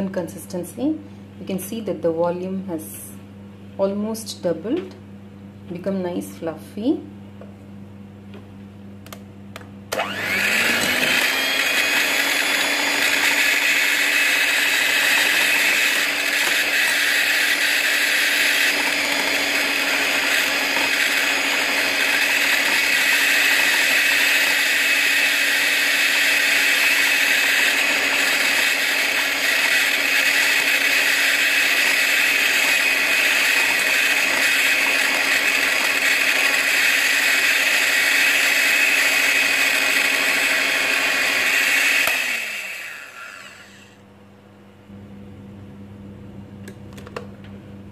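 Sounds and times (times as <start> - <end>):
electric hand mixer whining: 9.9 - 44.0.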